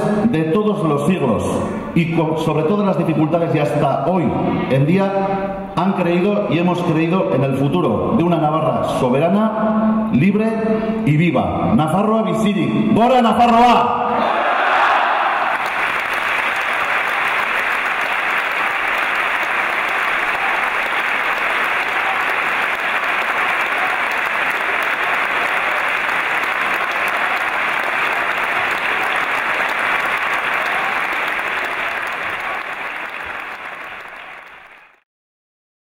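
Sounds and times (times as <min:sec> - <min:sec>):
audience applauding: 0:14.3 - 0:35.0.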